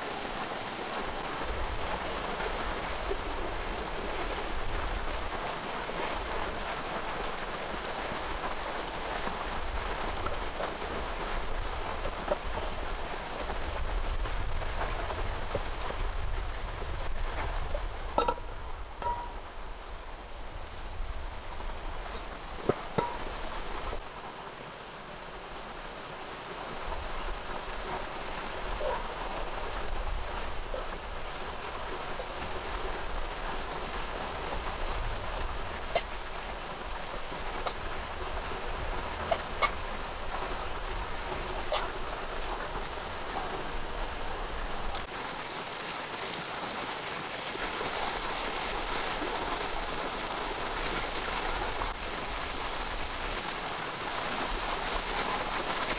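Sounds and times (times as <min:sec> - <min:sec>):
steady rain: 0:00.0 - 0:55.9
water drop taps: 0:19.0 - 0:19.4, 0:23.0 - 0:23.3.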